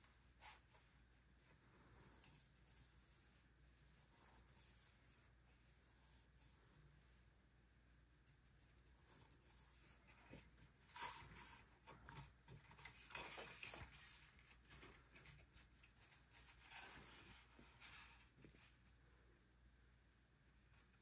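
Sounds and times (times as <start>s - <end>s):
paper rustling: 9.3s - 18.8s.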